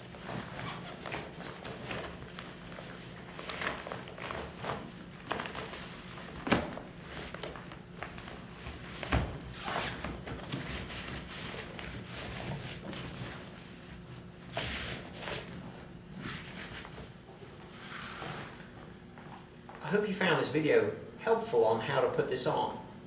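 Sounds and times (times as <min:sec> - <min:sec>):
nylon fabric rustling and swishing: 0:00.0 - 0:18.8.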